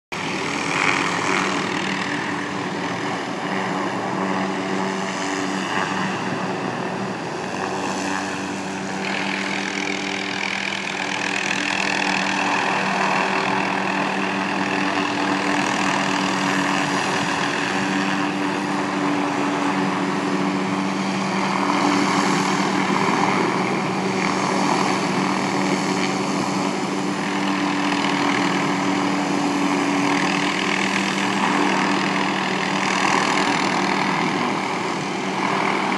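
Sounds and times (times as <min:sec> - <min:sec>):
helicopter rotor and engine drone: 0:00.1 - 0:35.9.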